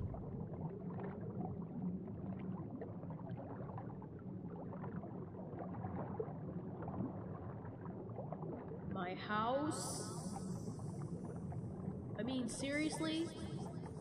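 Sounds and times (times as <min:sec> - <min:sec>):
low underwater rumble: 0:00.0 - 0:09.2
water bubbling and gurgling: 0:00.0 - 0:14.0.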